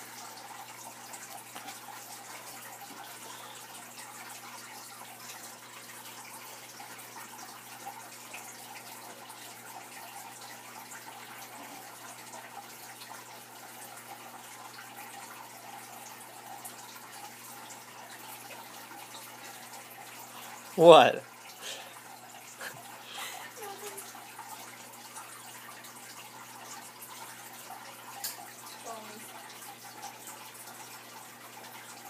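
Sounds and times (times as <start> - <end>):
drip-like ticks: 0.0 - 20.6, 21.3 - 32.0
aquarium water trickling: 0.0 - 32.0
faint steady hum: 0.0 - 32.0.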